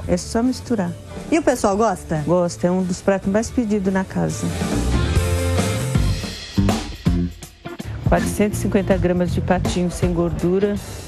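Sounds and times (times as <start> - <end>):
music with drum beat and bass: 4.4 - 11.0.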